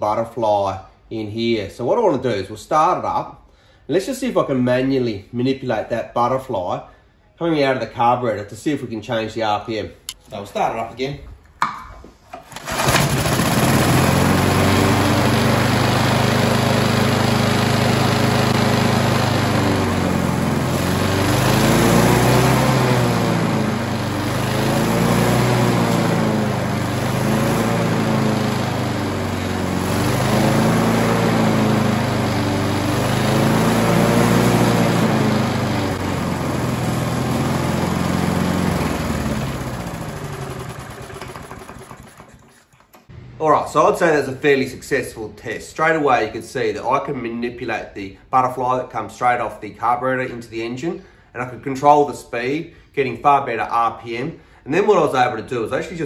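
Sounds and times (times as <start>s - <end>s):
lawnmower engine revving: 12.4s - 42.9s.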